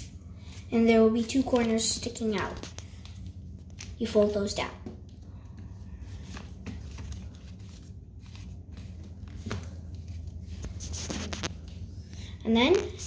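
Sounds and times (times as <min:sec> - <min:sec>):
steady low hum: 0:00.0 - 0:13.0
paper rustling and crinkling: 0:06.0 - 0:12.0.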